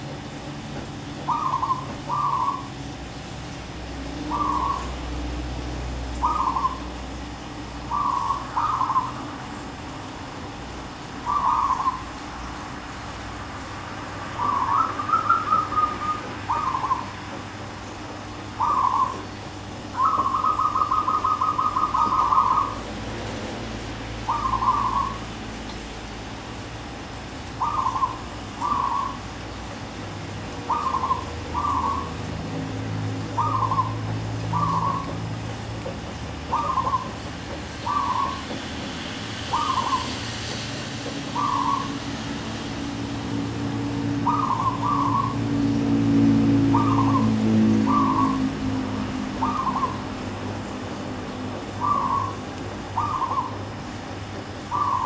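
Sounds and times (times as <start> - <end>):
dove cooing: 1.1 - 2.8, 4.2 - 5.0, 6.2 - 7.0, 7.8 - 9.3, 11.2 - 12.1, 14.4 - 17.4, 18.5 - 19.3, 19.9 - 22.9, 24.2 - 25.3, 27.6 - 29.3, 30.6 - 35.6, 36.4 - 37.2, 37.8 - 38.6, 39.5 - 40.2, 41.3 - 42.0, 44.0 - 50.3, 51.7 - 53.7, 54.6 - 55.0.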